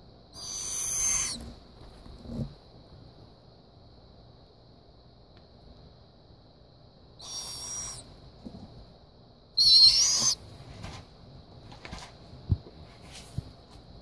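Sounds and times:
owl chick hissing screeches: 0.4s - 1.5s, 7.2s - 8.1s, 9.6s - 10.4s.

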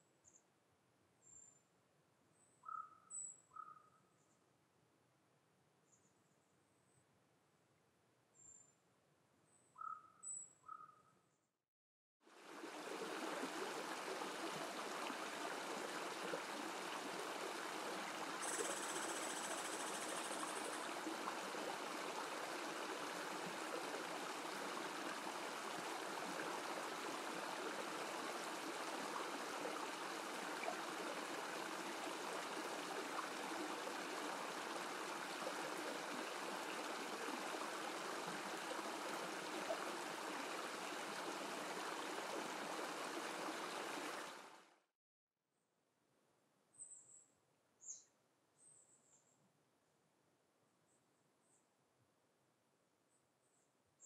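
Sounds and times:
waterfall trickling and splashing: 12.3s - 44.6s.

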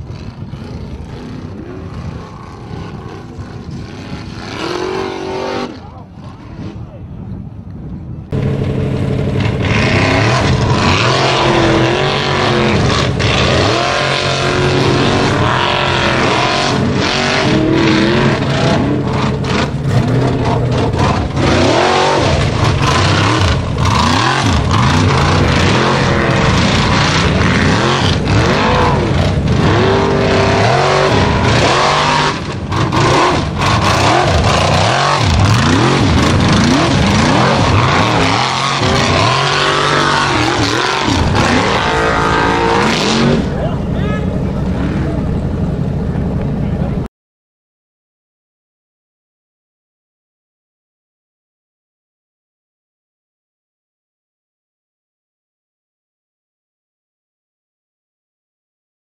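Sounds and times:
race engine revving: 0.0s - 6.9s, 8.3s - 47.1s.

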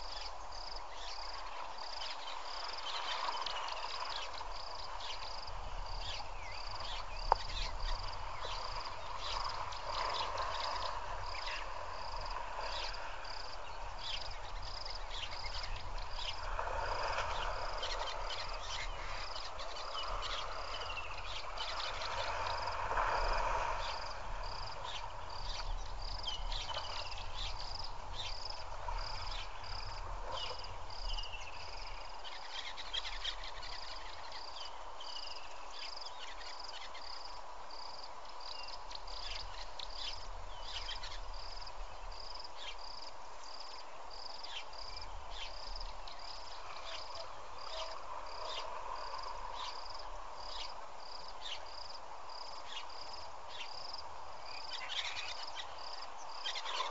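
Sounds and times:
bird calls: 0.0s - 22.5s, 24.8s - 37.1s, 54.5s - 56.9s
insect chirping: 0.0s - 56.9s.

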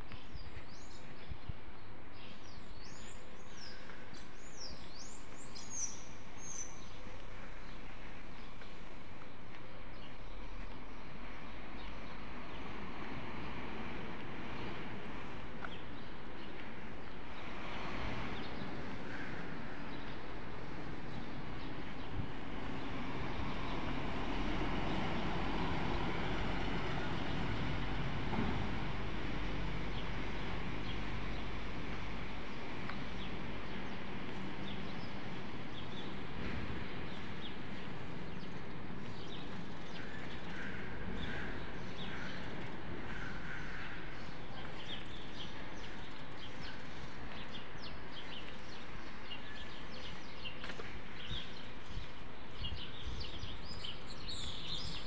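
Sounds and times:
distant traffic rumble: 2.6s - 55.0s
small birds chirping: 32.8s - 55.0s.

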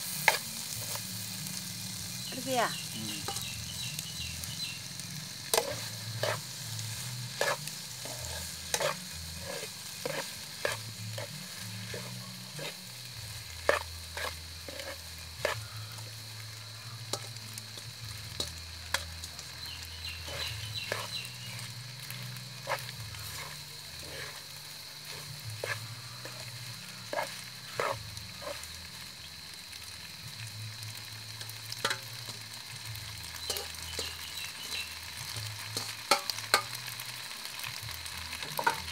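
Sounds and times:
food sizzling in a frying pan: 0.0s - 38.9s
metal spatula scraping bowl and pan: 3.2s - 3.6s, 5.5s - 6.6s, 7.3s - 12.8s, 13.6s - 16.1s, 20.2s - 26.5s, 27.1s - 28.7s.

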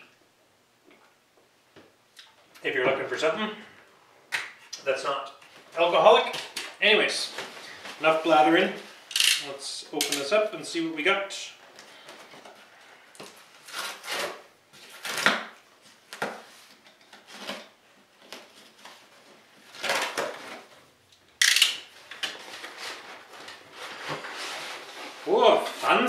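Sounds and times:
cardboard ripping: 13.6s - 15.6s.

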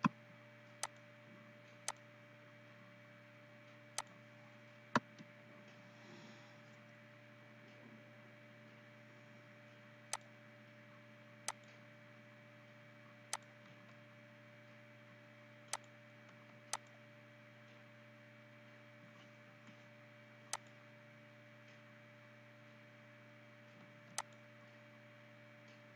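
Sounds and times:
faint steady hum: 0.0s - 25.9s
computer mouse clicking: 0.8s - 1.0s, 1.8s - 2.1s, 11.5s - 11.8s, 13.3s - 13.6s, 15.7s - 16.0s, 16.7s - 17.0s, 20.5s - 20.8s, 24.2s - 24.4s.

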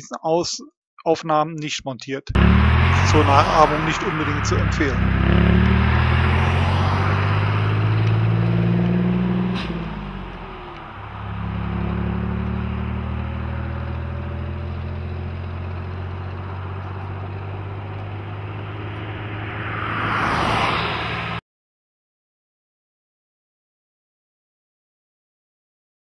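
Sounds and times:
diesel truck engine pulling away: 2.4s - 21.4s
passing car rushing: 2.4s - 21.4s.

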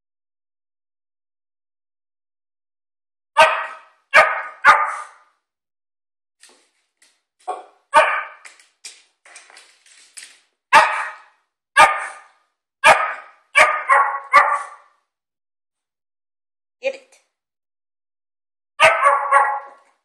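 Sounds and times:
small dog barking: 3.4s - 5.2s, 7.4s - 8.4s, 10.7s - 14.9s, 18.8s - 19.9s.

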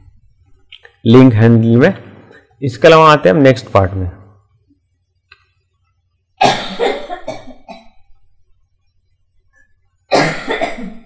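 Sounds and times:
man coughing: 10.1s - 11.0s.

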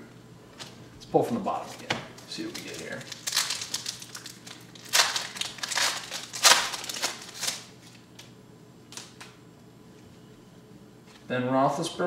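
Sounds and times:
wrapper crinkling and tearing: 1.6s - 8.3s.

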